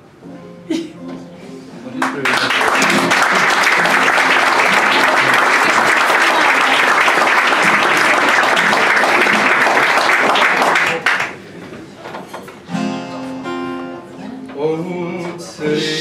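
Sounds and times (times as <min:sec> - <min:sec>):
audience applauding: 0:02.0 - 0:11.6.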